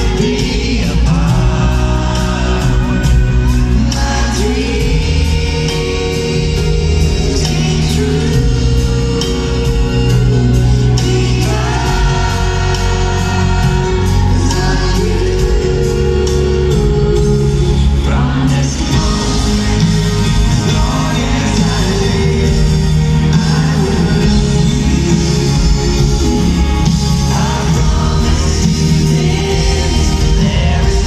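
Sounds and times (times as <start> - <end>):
live band playing ballad: 0.0 - 31.0.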